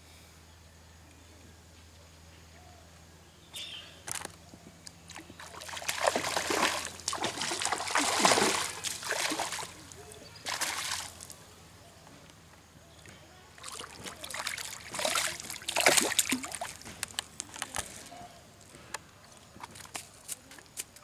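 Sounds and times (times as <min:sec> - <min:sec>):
fish splashing at water surface: 0:05.1 - 0:11.3, 0:13.6 - 0:17.7.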